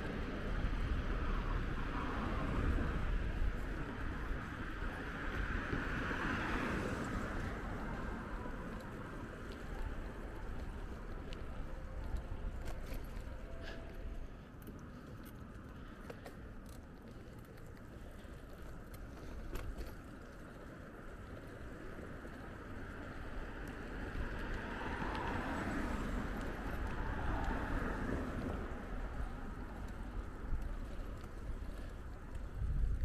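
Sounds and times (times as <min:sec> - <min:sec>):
bicycle tyres rumbling: 0:00.0 - 0:33.0
broad rush of noise: 0:00.0 - 0:33.0
wind on microphone: 0:24.2 - 0:33.0.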